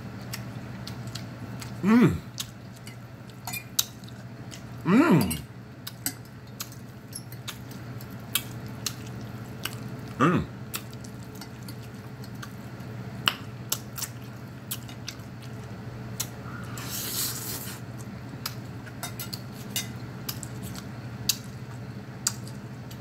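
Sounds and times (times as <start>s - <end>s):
low steady hum: 0.0s - 23.0s
wet chewing clicks: 0.2s - 4.8s, 5.8s - 16.4s, 20.2s - 23.0s.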